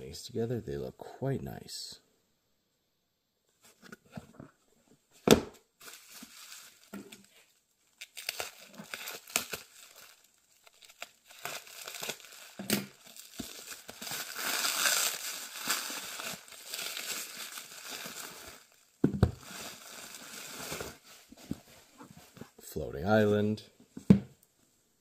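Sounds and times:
plastic wrap crinkling and tearing: 0:05.8 - 0:21.6.

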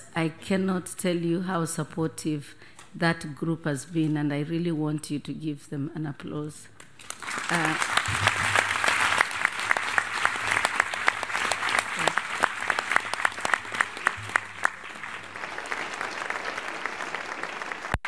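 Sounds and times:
audience applauding: 0:07.0 - 0:18.0.

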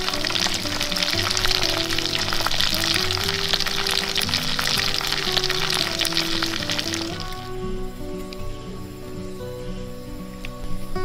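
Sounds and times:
fish frying in bubbling oil: 0:00.0 - 0:07.6.

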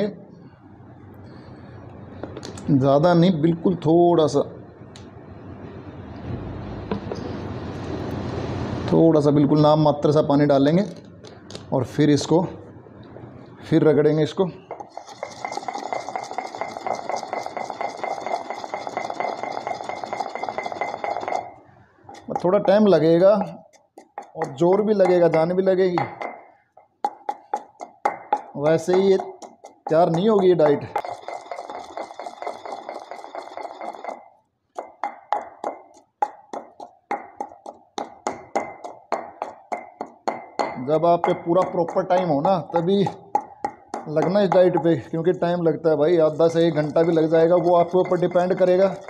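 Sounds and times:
pestle grinding in stone mortar: 0:14.7 - 0:45.4, 0:46.2 - 0:49.0.

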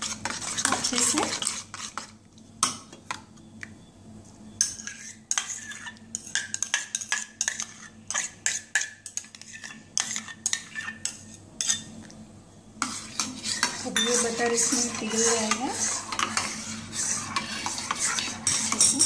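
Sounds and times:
spoon clinking in metal bowl: 0:13.9 - 0:15.6, 0:18.4 - 0:19.0.

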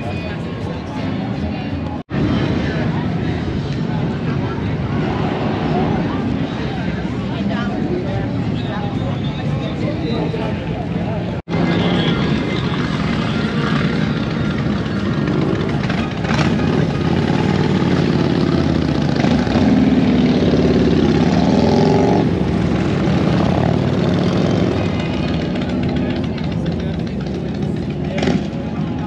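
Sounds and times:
motorcycles riding past: 0:11.5 - 0:29.0.

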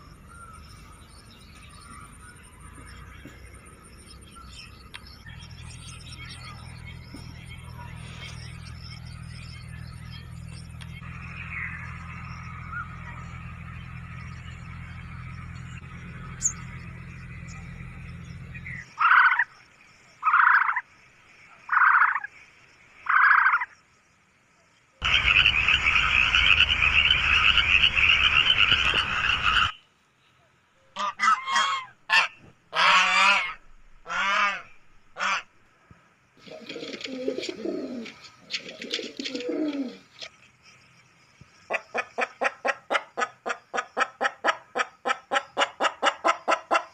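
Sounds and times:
frog calling: 0:18.8 - 0:19.6, 0:20.2 - 0:20.9, 0:21.6 - 0:22.3, 0:23.0 - 0:23.8, 0:25.0 - 0:29.8
short pitched calls: 0:25.0 - 0:29.8
pigeons cooing: 0:36.4 - 0:40.2.

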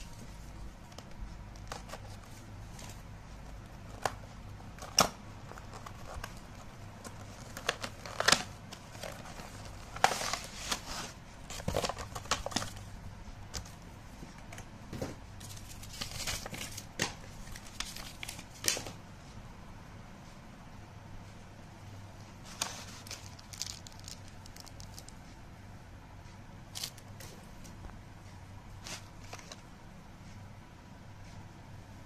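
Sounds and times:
packaging crinkling: 0:03.7 - 0:12.8, 0:15.4 - 0:19.0, 0:22.5 - 0:25.2.

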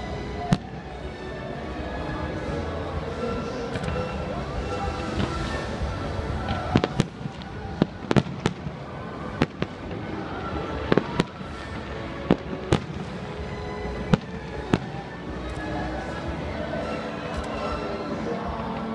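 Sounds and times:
background music: 0:00.0 - 0:18.9.

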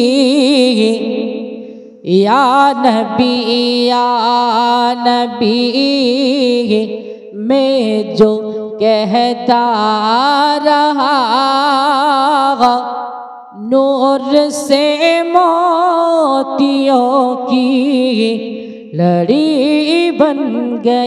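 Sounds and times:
man singing unaccompanied: 0:02.1 - 0:12.8.

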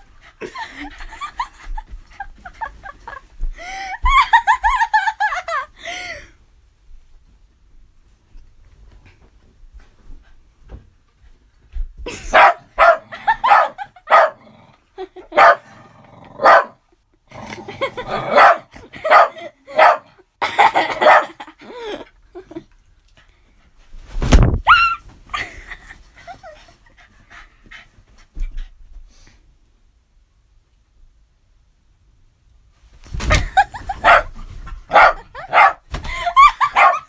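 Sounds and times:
dog barking: 0:12.3 - 0:14.4, 0:15.3 - 0:15.6, 0:16.4 - 0:16.8, 0:18.3 - 0:20.1, 0:21.0 - 0:21.4, 0:34.0 - 0:34.3, 0:34.9 - 0:35.8, 0:36.6 - 0:37.0.

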